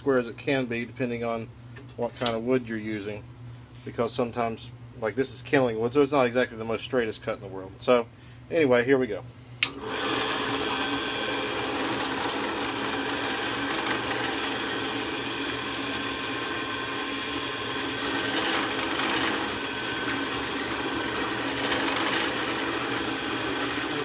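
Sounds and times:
drill press boring into wood: 9.6 - 24.0.

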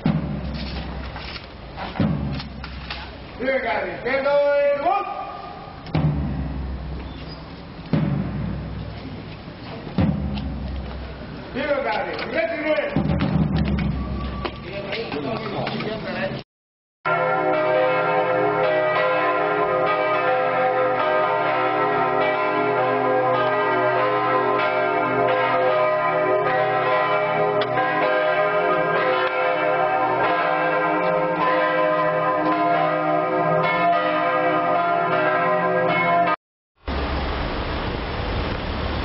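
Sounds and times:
church bells pealing: 17.1 - 36.4.

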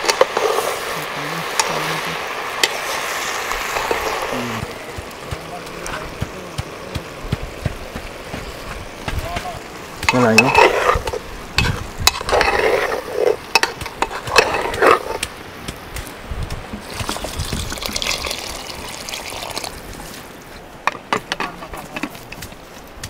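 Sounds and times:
liquid being poured: 16.8 - 20.0.

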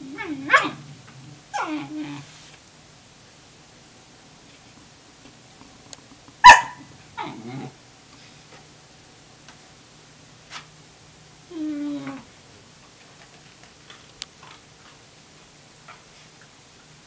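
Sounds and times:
dog barking: 0.5 - 0.8, 6.4 - 6.9.

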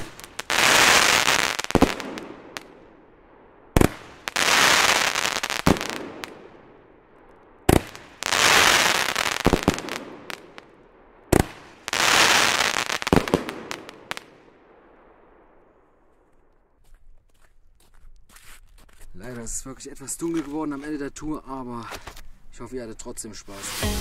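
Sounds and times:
firework bangs: 0.0 - 2.8, 3.7 - 6.7, 7.6 - 10.7, 11.3 - 14.4
firework crackling pops: 0.0 - 2.8, 3.7 - 6.5, 7.7 - 14.4.

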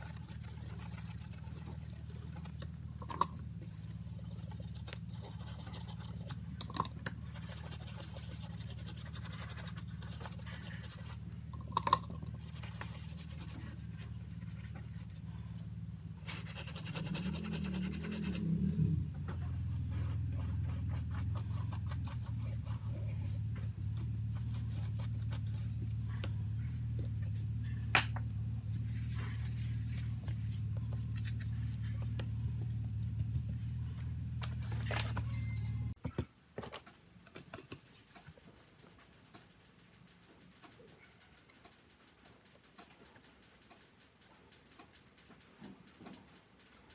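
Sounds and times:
brush scrubbing circuit board: 0.0 - 2.7, 3.6 - 6.5, 7.2 - 11.3, 12.4 - 18.7, 19.4 - 25.9
steady low hum: 0.0 - 36.2.

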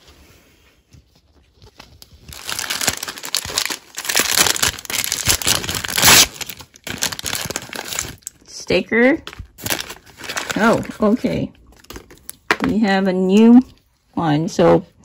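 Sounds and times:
plastic wrapping crinkling: 1.0 - 8.5, 9.2 - 12.7.

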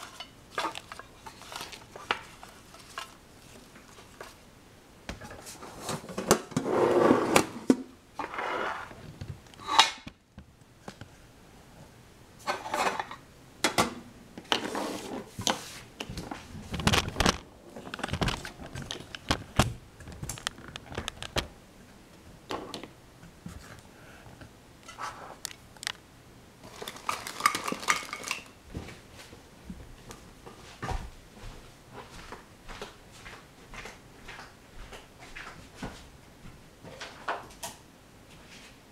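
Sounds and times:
hard objects clicking and clattering: 0.0 - 3.2, 16.6 - 21.5, 26.6 - 28.6.

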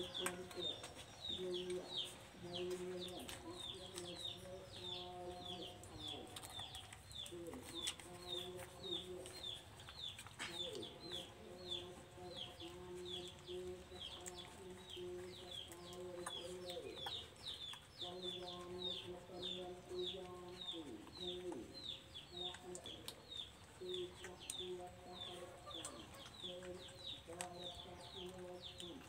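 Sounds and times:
chickens clucking: 0.0 - 29.0
chicks peeping: 0.0 - 29.0.

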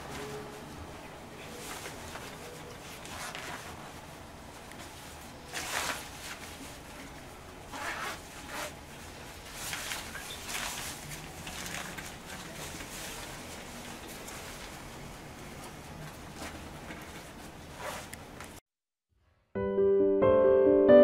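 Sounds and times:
dog raincoat fabric rustling: 1.4 - 4.0, 7.7 - 14.9.

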